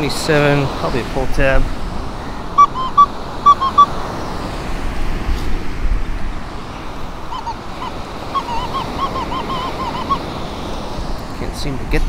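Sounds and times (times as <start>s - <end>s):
surf: 0.0s - 12.0s
wind: 0.0s - 12.0s
metal detector beeps: 2.6s - 3.9s, 8.4s - 10.2s
metal detector wavering tones: 2.6s - 3.9s, 7.3s - 10.2s.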